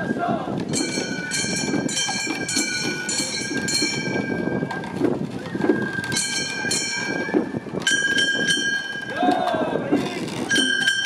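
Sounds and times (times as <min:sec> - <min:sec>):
bamboo flutes playing high notes: 0:05.4 - 0:09.7.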